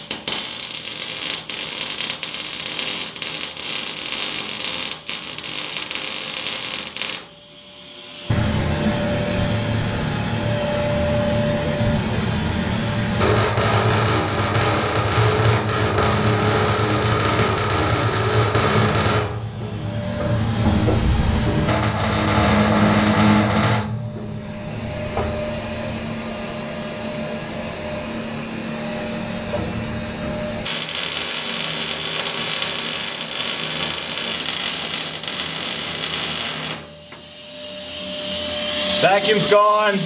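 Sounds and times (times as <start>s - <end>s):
welder crackling: 0.0s - 7.3s, 13.2s - 19.4s, 21.6s - 23.9s, 30.6s - 36.9s
shop vacuum hiss: 0.0s - 9.8s, 30.7s - 40.0s
machine hum: 0.0s - 40.0s.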